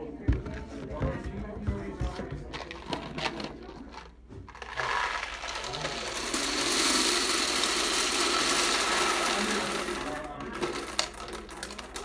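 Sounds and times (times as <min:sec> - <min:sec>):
candies rattling into hopper: 0:02.5 - 0:12.0.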